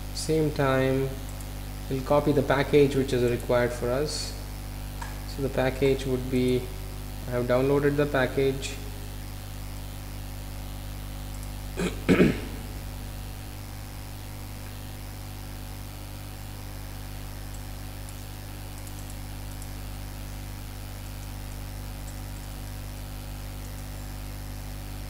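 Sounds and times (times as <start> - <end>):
electrical hum and hiss: 0.0 - 25.0
short loud vocal sound: 11.8 - 12.8.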